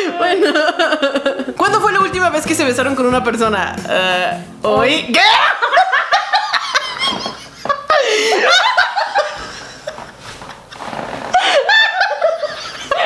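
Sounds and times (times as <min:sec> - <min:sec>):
women laughing: 0:00.0 - 0:01.6, 0:05.2 - 0:13.0.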